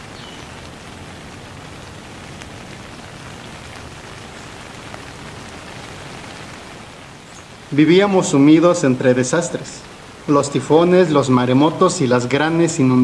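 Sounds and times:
raindrop ticks: 0.0 - 8.3
steady rain falling: 0.0 - 13.0.

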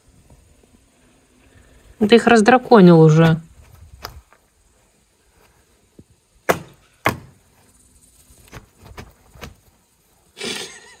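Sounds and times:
sharp knocks: 6.5 - 7.3.

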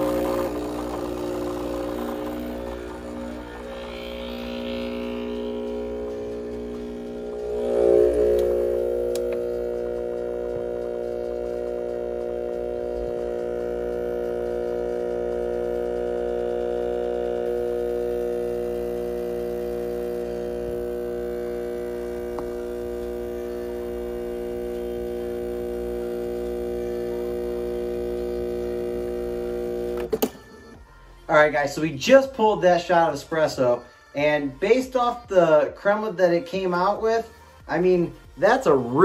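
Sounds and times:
espresso machine pump droning: 0.0 - 30.3.

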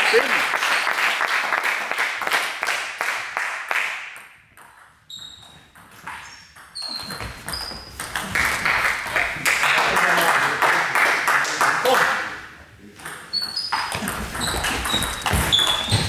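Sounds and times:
spectators clapping: 0.0 - 4.3, 8.2 - 12.4
shoes squeaking on floor: 5.0 - 8.6, 13.0 - 16.0.

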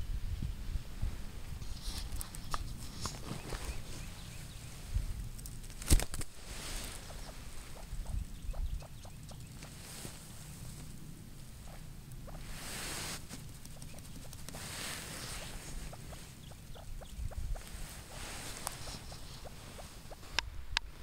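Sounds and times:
brief rustles: 1.6 - 4.2
grouse clucking: 6.8 - 20.5.

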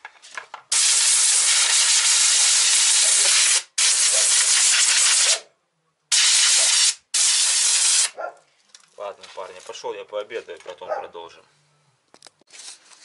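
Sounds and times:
compressed air blow gun hissing: 0.7 - 5.4, 6.1 - 8.2.

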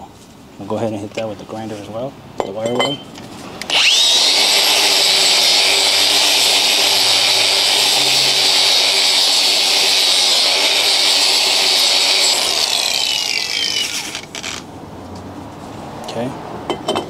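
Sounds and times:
angle grinder wire brush whine: 3.6 - 14.7.

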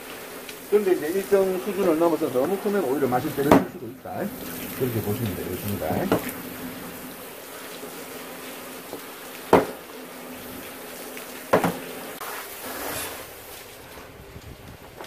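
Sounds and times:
steady buzzing hum: 0.0 - 12.2
knocks on cutting board: 3.5 - 3.7, 9.5 - 9.8, 11.5 - 11.8.

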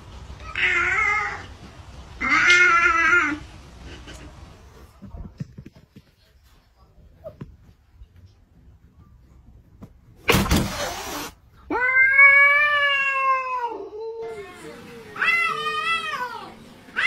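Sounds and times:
cat hissing: 10.3 - 12.0
cat yowling: 11.7 - 14.2.

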